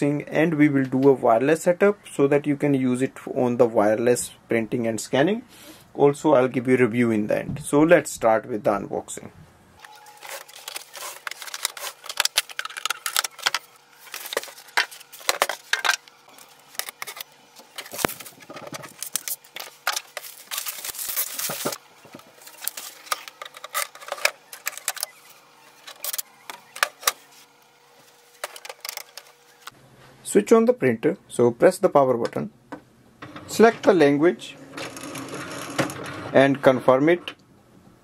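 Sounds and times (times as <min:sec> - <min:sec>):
plastic wrap rustling: 0:09.8 - 0:25.2
plastic parts clicking: 0:10.6 - 0:16.1.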